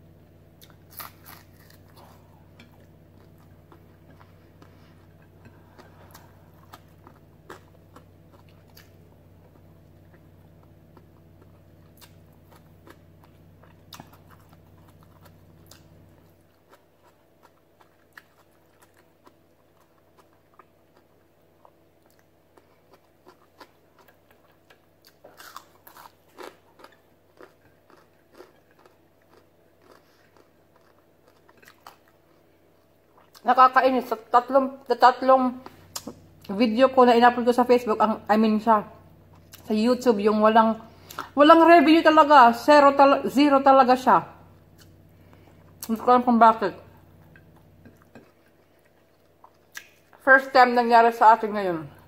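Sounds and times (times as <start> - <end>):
low steady hum: 0.0 - 52.0
person chewing crisp lettuce: 0.5 - 33.5, 39.2 - 39.7, 47.0 - 50.2.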